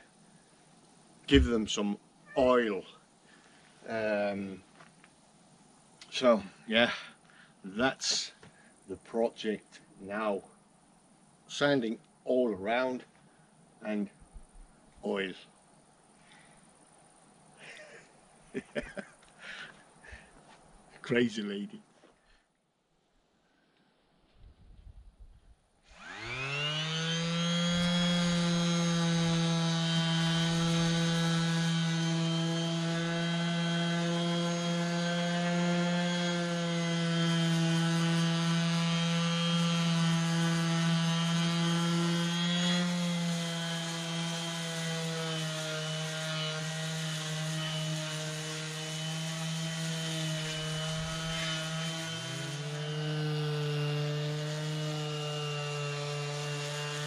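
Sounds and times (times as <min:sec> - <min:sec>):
electric sander motor running: 0:25.9 - 0:57.0.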